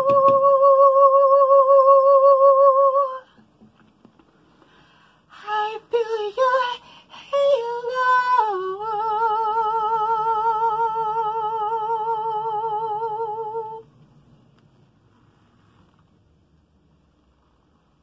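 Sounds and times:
man singing unaccompanied: 0:05.3 - 0:13.8.

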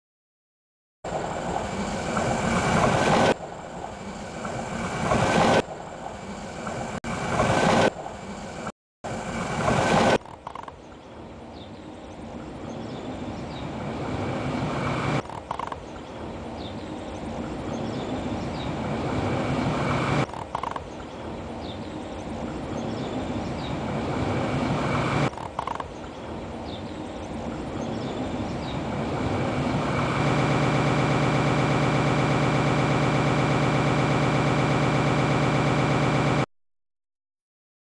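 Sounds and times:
train passing: 0:01.1 - 0:10.0, 0:28.3 - 0:34.9.

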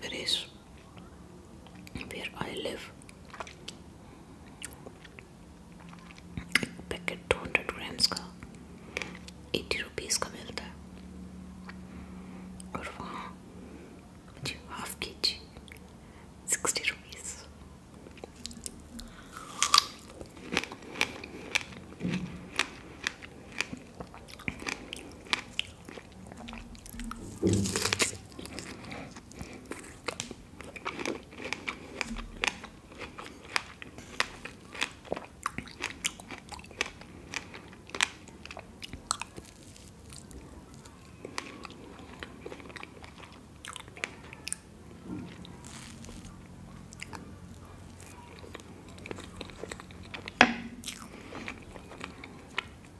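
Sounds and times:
biting and chewing cake: 0:18.0 - 0:52.9.

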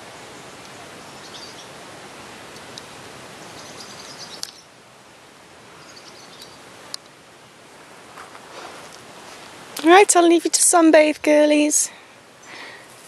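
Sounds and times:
outdoor hiss: 0:00.0 - 0:13.0
bird chirps: 0:01.0 - 0:01.7, 0:03.4 - 0:04.7, 0:05.8 - 0:06.6.

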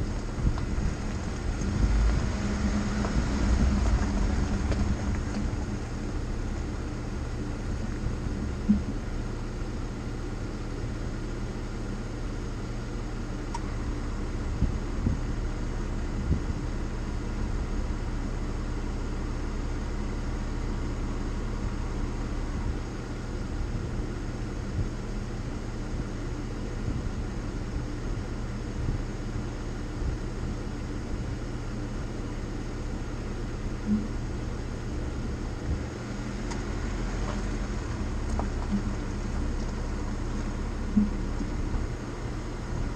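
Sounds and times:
car engine idling: 0:00.0 - 0:42.9.

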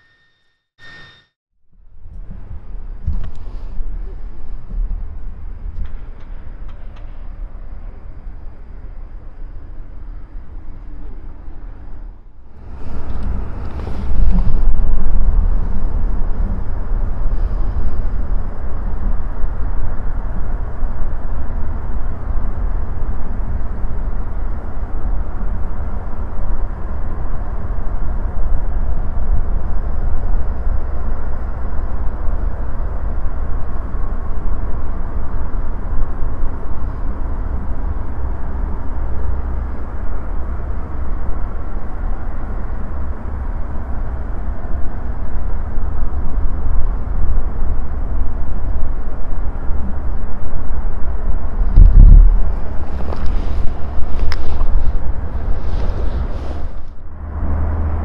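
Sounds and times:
faint high whine: 0:00.0 - 0:58.0
airport background rumble: 0:01.8 - 0:58.0
wind buffeting microphone: 0:12.6 - 0:31.6, 0:44.8 - 0:57.0.

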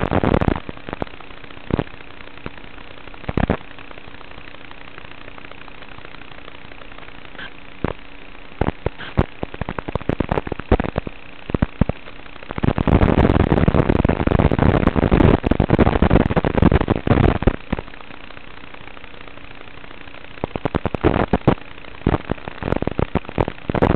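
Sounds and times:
crackling radio static: 0:00.0 - 0:23.9
low steady hum: 0:00.0 - 0:23.9
clicks and pops: 0:01.7 - 0:02.6, 0:03.2 - 0:03.7.

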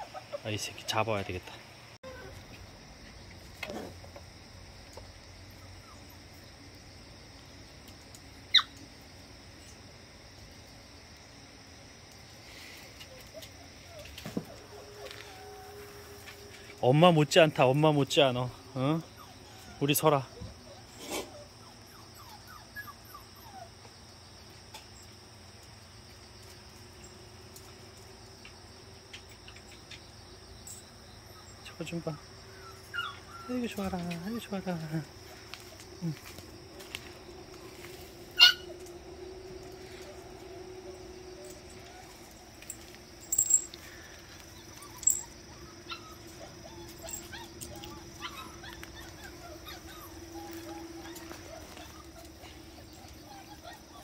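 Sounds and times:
insects chirring: 0:00.0 - 0:54.0
puppy yelping: 0:08.5 - 0:08.8, 0:20.6 - 0:23.8, 0:31.4 - 0:34.4, 0:38.3 - 0:38.8, 0:44.5 - 0:54.0.

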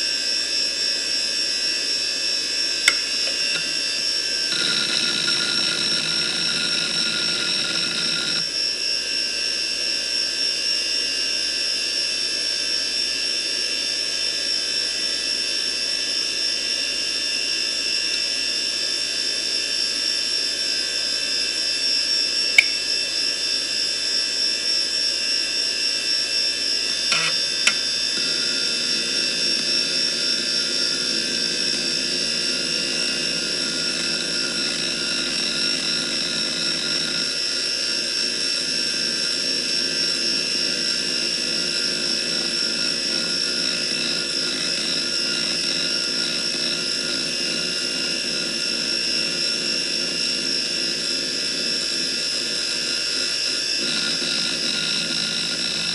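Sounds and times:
hard drive whine: 0:00.0 - 0:09.2, 0:26.2 - 0:55.9
hard drive clicks: 0:02.9 - 0:03.8, 0:26.9 - 0:27.9
hard drive seek noise: 0:02.9 - 0:03.9, 0:04.5 - 0:08.5, 0:26.9 - 0:37.3.

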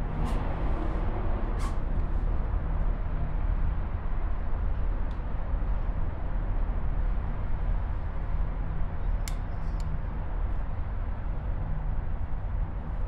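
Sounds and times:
aerial tram cabin rumble: 0:00.0 - 0:13.0.

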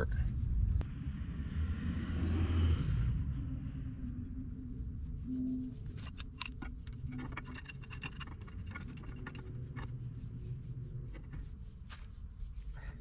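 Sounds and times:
low steady rumble: 0:00.0 - 0:13.0
metal pipe clicks and scrapes: 0:05.9 - 0:12.0.

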